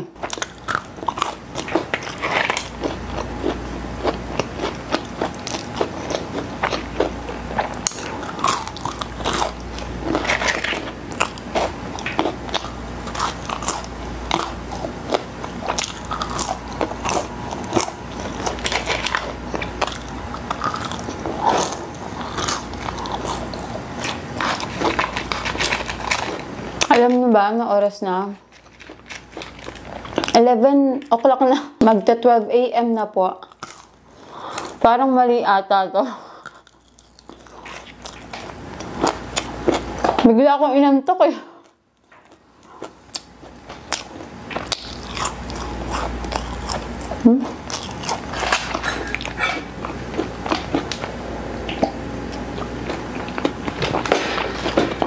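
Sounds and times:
mouth chewing: 0.0 - 27.0, 36.3 - 40.3, 42.0 - 55.0
crisp crunching of fries: 0.2 - 27.2, 28.4 - 30.4, 33.4 - 34.8, 36.4 - 40.3, 42.0 - 55.0.

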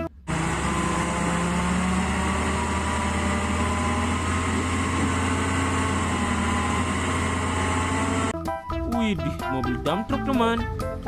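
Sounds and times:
truck engine running: 0.0 - 8.4.

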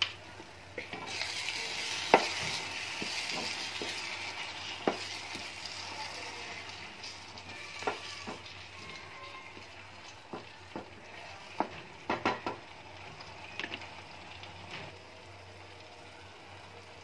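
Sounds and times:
frying sizzle: 0.0 - 17.0
wooden spatula stirring gravy: 0.8 - 12.6.

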